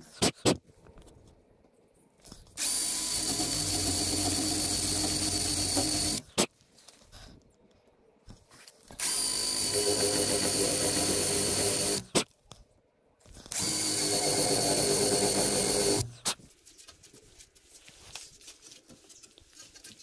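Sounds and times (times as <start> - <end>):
electric drill boring into wood: 2.6 - 6.2, 9.0 - 12.1, 13.5 - 16.1.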